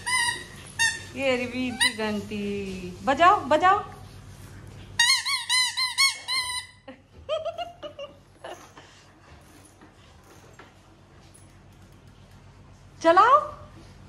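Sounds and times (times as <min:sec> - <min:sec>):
toy squeaking: 0:00.0 - 0:02.0, 0:05.0 - 0:06.8.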